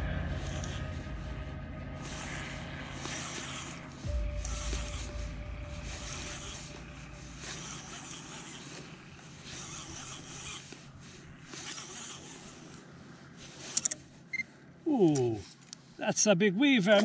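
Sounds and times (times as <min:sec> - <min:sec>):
fishing reel winding rasp: 0:06.0 - 0:10.9, 0:11.5 - 0:12.8, 0:13.6 - 0:14.0.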